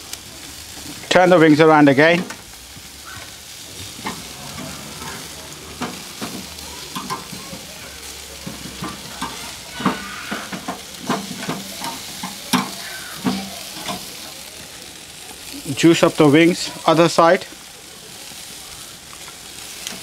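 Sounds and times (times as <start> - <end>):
meat sizzling on a grill: 0.0 - 20.0
clicks and knocks on grill: 2.1 - 2.4, 5.7 - 7.7, 8.4 - 14.1.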